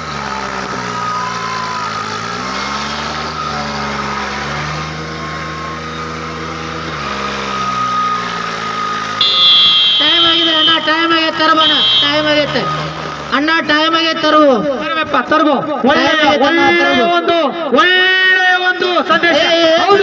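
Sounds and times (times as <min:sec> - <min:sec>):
tractor diesel engine revving: 0:00.0 - 0:15.4
shrill high tone: 0:07.6 - 0:13.0.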